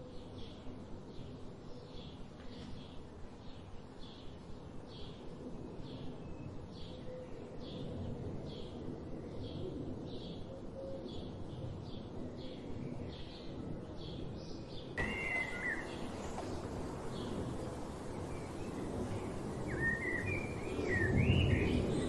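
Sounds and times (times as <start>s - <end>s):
bird wavering call: 15.0s - 21.5s
low outdoor rumble: 15.0s - 22.0s
songbird chip calls: 15.0s - 22.0s.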